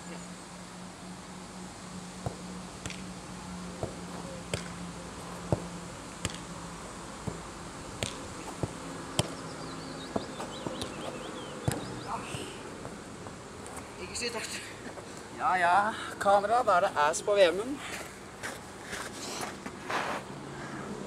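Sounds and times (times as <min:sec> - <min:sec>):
ball being kicked: 0:10.1 - 0:13.0.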